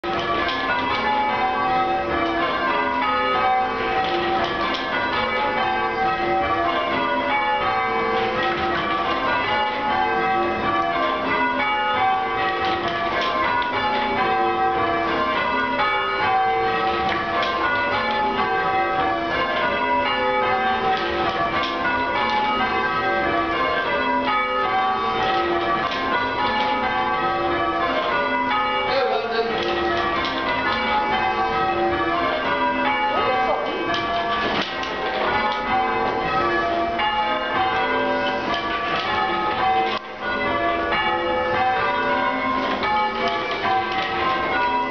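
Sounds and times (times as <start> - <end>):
church bells change ringing: 0.0 - 44.9.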